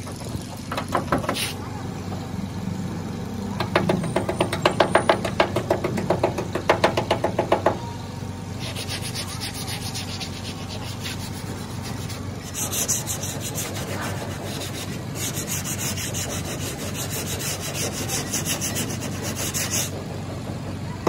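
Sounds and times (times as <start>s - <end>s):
high rasping rub: 1.3s - 1.6s, 8.6s - 20.0s
hand tool strokes on metal: 8.6s - 19.9s.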